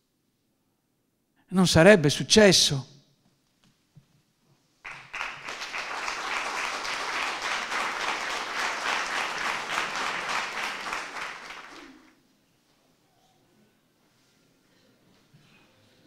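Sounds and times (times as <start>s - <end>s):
audience applauding: 4.9s - 12.2s.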